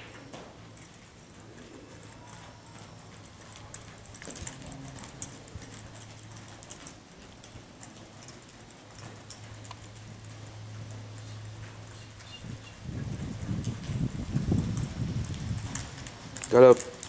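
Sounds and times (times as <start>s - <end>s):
horse hoofbeats on soft dirt: 0.0s - 17.0s
steady low hum: 0.0s - 17.0s.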